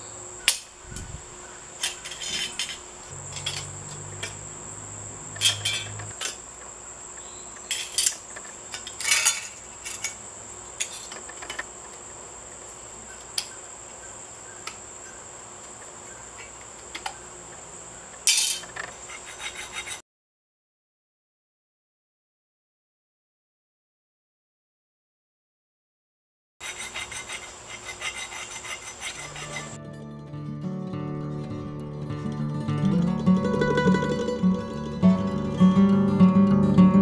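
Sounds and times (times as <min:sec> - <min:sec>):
metal clinks and scrapes: 0:01.8 - 0:04.5, 0:05.3 - 0:06.4, 0:07.7 - 0:10.2, 0:10.8 - 0:11.6, 0:18.3 - 0:20.0, 0:26.6 - 0:29.8.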